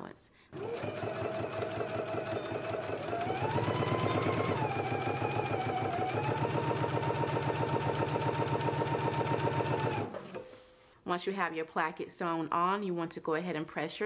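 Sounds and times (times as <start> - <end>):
sewing machine motor whine: 0.6 - 10.4.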